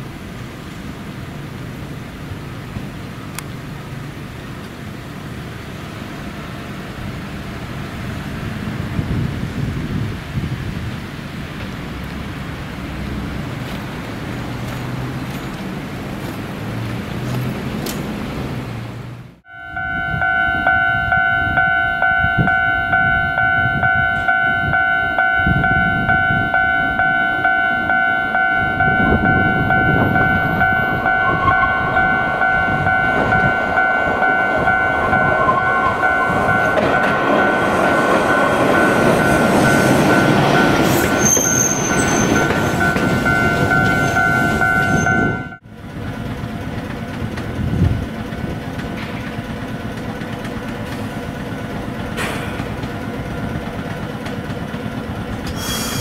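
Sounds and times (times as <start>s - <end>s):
tram rumble on rails: 0.0s - 56.0s
multi-tone ringing bell: 19.5s - 45.6s
high wheel squeal: 19.8s - 45.6s, 55.4s - 56.0s.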